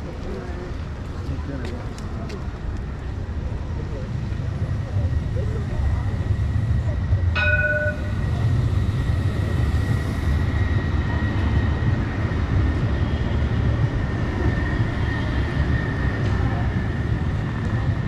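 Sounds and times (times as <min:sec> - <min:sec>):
tram rumble: 0:00.0 - 0:18.0
brief chime: 0:07.4 - 0:08.2.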